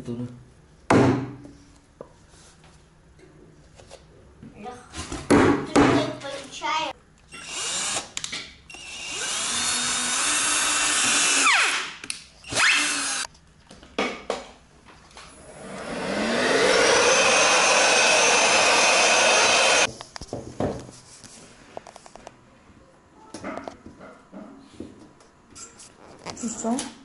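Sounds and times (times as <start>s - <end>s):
cordless drill whining: 7.3s - 8.1s, 8.7s - 11.8s, 12.5s - 13.3s, 15.5s - 19.9s.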